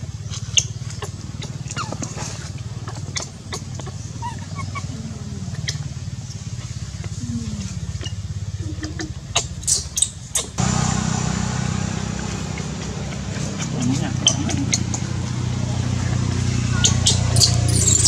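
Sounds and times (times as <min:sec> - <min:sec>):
low engine hum: 0:00.0 - 0:18.0
baby monkey squealing: 0:03.1 - 0:05.9, 0:08.0 - 0:10.6, 0:14.2 - 0:15.0, 0:16.8 - 0:18.0.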